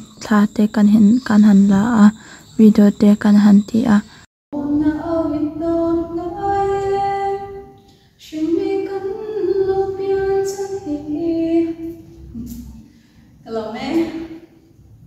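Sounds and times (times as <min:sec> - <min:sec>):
woman singing into a microphone: 0:04.6 - 0:12.6.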